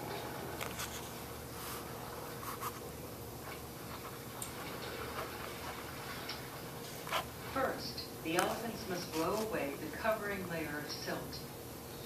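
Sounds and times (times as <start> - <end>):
room hum: 0.0 - 12.0
faint scratching: 0.7 - 2.9, 8.7 - 9.7.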